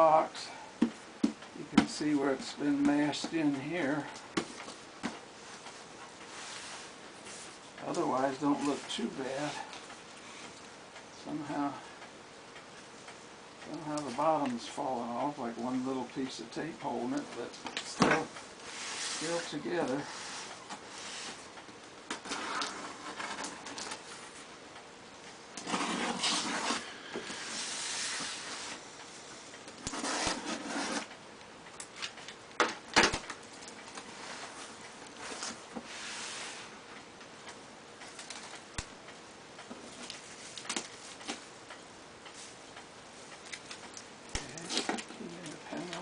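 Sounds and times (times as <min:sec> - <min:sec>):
cardboard scraping: 0:22.1 - 0:24.0, 0:25.6 - 0:28.8, 0:29.9 - 0:31.1
tape pulling: 0:22.1 - 0:24.0, 0:25.6 - 0:28.8, 0:29.8 - 0:31.2, 0:43.5 - 0:46.0.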